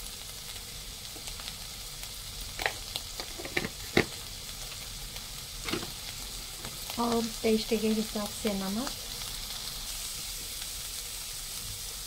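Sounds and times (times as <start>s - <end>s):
meat sizzling in a pan: 0.0s - 12.0s.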